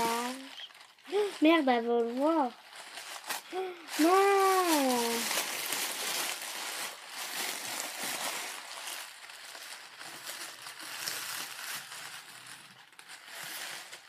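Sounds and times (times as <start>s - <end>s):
paper wrapping crinkling: 0.0s - 14.0s.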